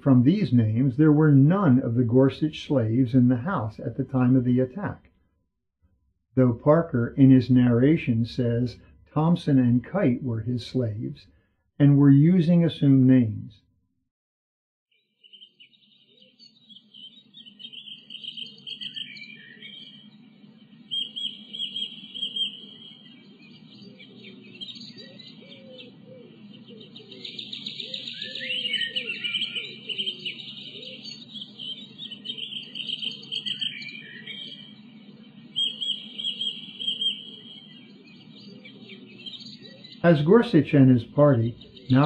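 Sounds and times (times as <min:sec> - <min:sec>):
songbirds singing: 0:00.0 - 0:05.0, 0:15.0 - 0:42.0
steady low hum: 0:00.0 - 0:05.1, 0:06.4 - 0:13.4, 0:34.5 - 0:42.0.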